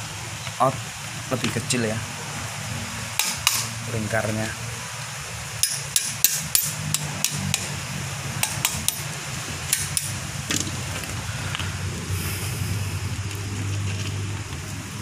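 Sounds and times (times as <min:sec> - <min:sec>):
sharp metallic clinks and taps: 0:05.6 - 0:07.7, 0:08.4 - 0:09.1, 0:09.7 - 0:10.2
steady low hum: 0:06.9 - 0:15.0.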